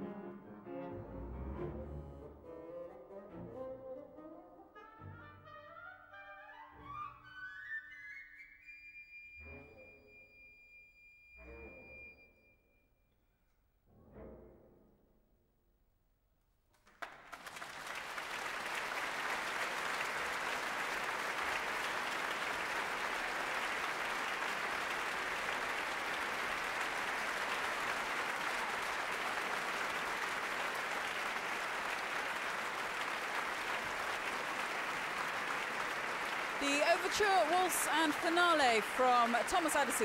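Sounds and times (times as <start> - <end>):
audience applause: 16.8 - 40.0.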